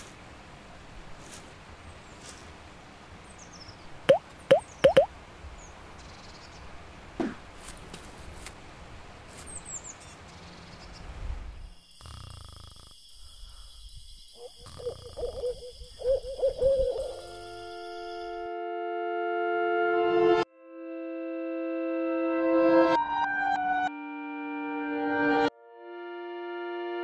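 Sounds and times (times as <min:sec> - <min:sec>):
forest ambience: 0:00.0 - 0:18.6
short high chirps: 0:04.5 - 0:05.1
wavering pitched call: 0:14.4 - 0:17.7
sustained synthesizer chord: 0:18.1 - 0:27.0.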